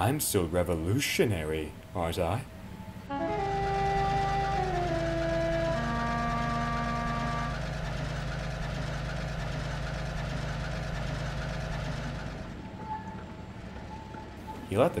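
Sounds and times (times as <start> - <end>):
diesel locomotive engine rumbling: 0.0 - 15.0
held music chord: 3.0 - 8.2.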